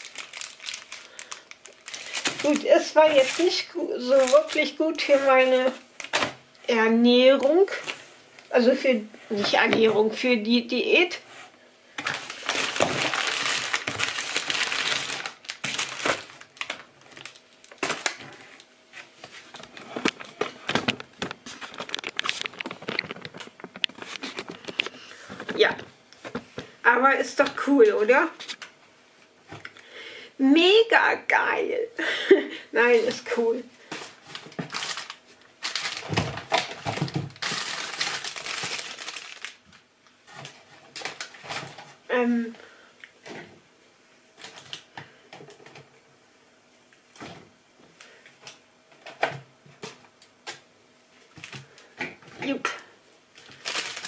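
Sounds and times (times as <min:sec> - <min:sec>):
plastic packaging crinkling: 0:00.0 - 0:06.4, 0:12.0 - 0:18.7, 0:19.4 - 0:25.8, 0:33.0 - 0:41.9, 0:44.4 - 0:44.9, 0:52.6 - 0:54.0.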